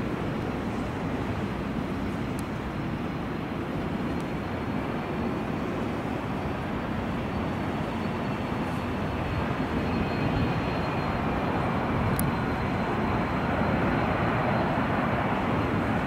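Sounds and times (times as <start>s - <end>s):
jet engine roar: 0.0s - 16.0s.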